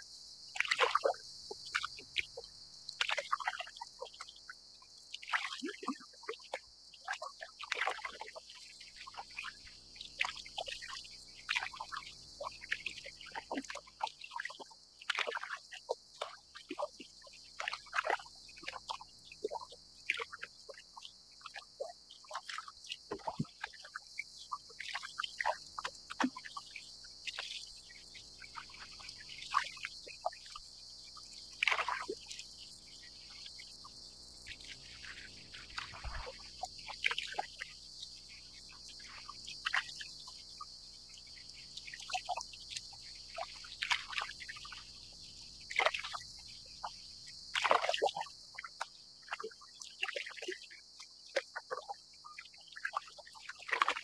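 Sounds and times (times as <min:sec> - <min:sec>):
cicada chorus: 0:00.0 - 0:54.0
water lapping against kayak hull: 0:34.9 - 0:37.6.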